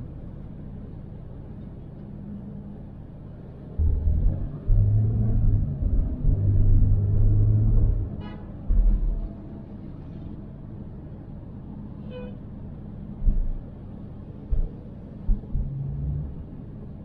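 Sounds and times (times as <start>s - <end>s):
car road noise: 0.0s - 17.0s.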